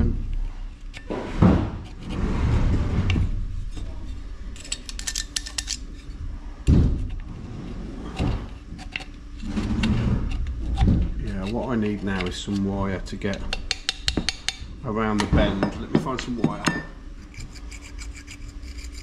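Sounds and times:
metal tool scraping in pipe: 17.2s - 19.0s.

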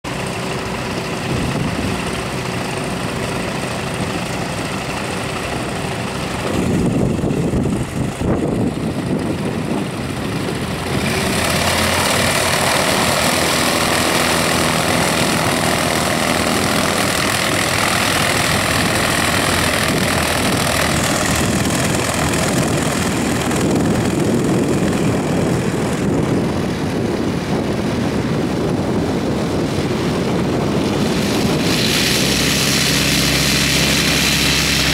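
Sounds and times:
light plane engine and propeller: 0.0s - 34.9s.

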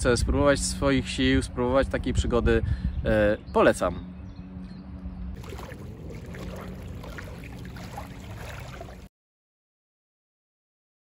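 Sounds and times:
small waves lapping on shore: 5.4s - 9.1s.

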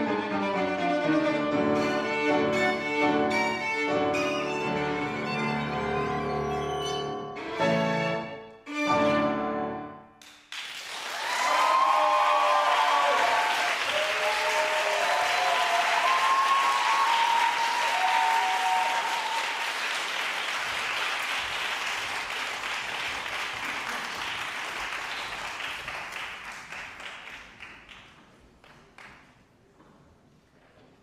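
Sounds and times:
audience applauding: 10.2s - 29.2s.

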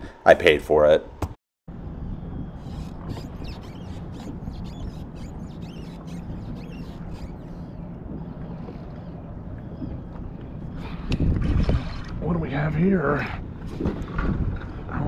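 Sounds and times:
wind on microphone: 1.7s - 15.0s
water slapping against hull: 3.0s - 12.2s.

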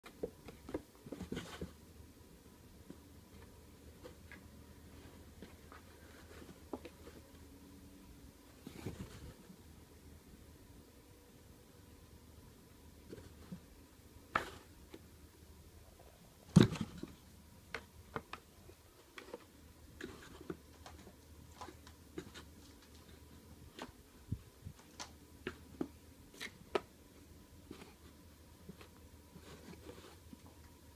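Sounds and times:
kittens pawing at cardboard: 0.0s - 1.8s, 2.8s - 7.4s, 16.5s - 26.9s, 27.6s - 30.6s.

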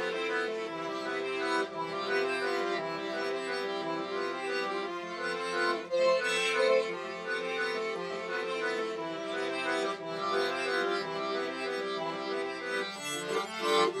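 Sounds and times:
instrumental music with held chords: 0.0s - 14.0s.

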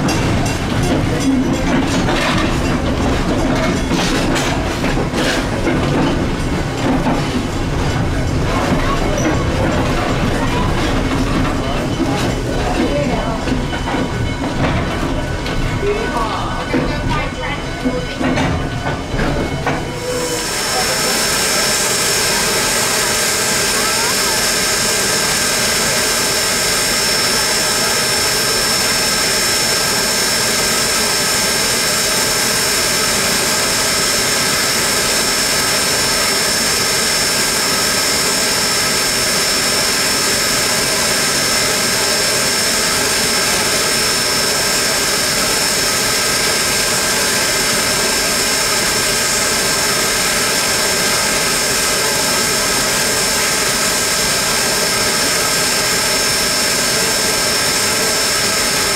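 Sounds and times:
steam hissing: 19.9s - 58.9s.

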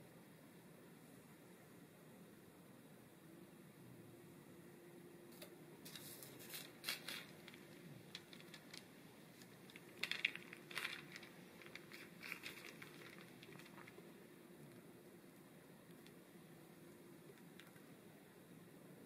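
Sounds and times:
parchment paper and dough crackling: 5.3s - 18.2s.

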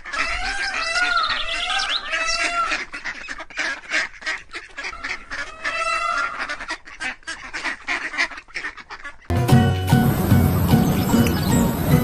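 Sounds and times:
harsh bird calls: 0.0s - 3.4s, 10.3s - 12.0s
waterfowl honking: 0.0s - 12.0s.

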